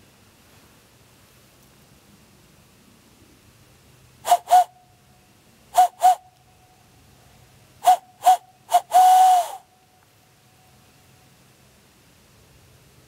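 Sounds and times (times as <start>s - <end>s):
hand-blown owl hoots: 4.2s - 4.8s, 5.8s - 6.3s, 7.8s - 9.7s.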